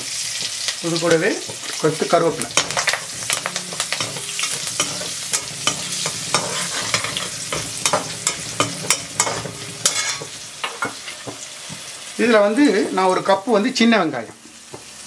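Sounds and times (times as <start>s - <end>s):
chillies sizzling in hot oil: 0.0s - 15.0s
metal spatula scraping pan: 0.4s - 11.5s.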